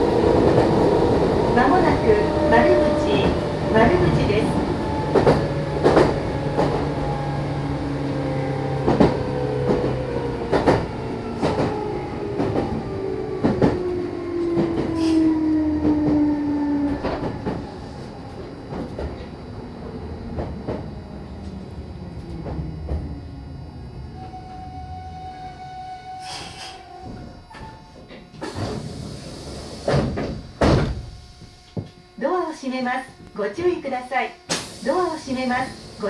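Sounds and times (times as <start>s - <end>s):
traction motor whine: 0.0s - 32.2s
steady equipment hum: 19.1s - 36.0s.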